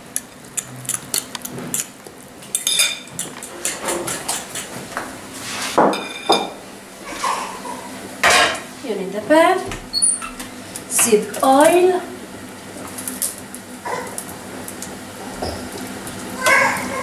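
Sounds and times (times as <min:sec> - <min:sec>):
metal cookware clanking: 0:05.9 - 0:06.5.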